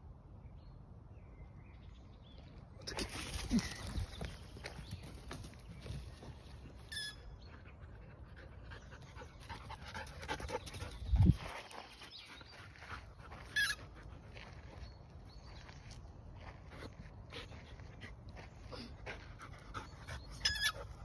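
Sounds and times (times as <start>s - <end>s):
soft scuffs on dirt: 2.9s - 6.9s, 11.2s - 20.0s.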